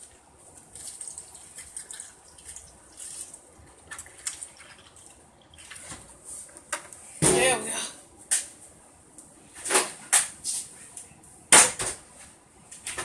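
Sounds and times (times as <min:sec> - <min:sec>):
milk pouring onto cereal: 0:00.1 - 0:05.9.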